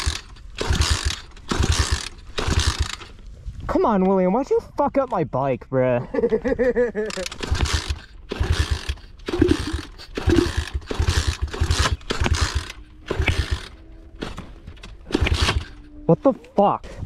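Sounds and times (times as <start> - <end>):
motorbike engine revving: 0.0 - 3.1, 7.1 - 16.2.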